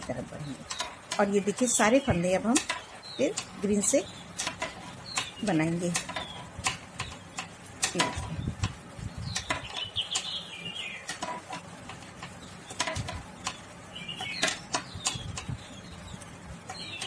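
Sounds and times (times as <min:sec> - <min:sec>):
knitting needles clicking: 0:00.0 - 0:10.3
birds chirping: 0:00.0 - 0:17.0.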